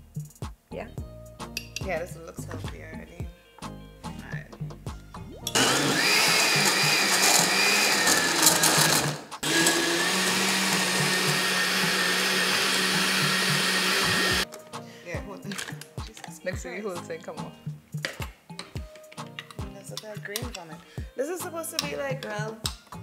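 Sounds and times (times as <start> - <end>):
blender blending frozen fruit: 5.6 - 14.4.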